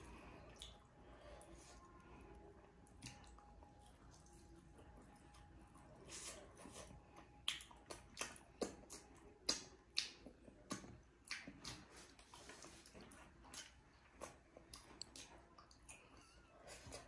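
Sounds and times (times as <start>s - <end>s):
wet lip smacks while eating: 7.4s - 16.0s.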